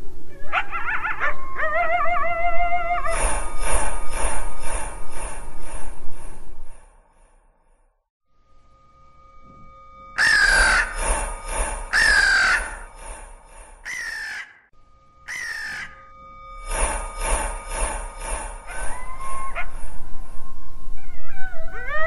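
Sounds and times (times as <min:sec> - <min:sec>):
crow cawing: 0:10.2 - 0:11.3, 0:11.9 - 0:12.9, 0:13.9 - 0:14.6, 0:15.3 - 0:16.0.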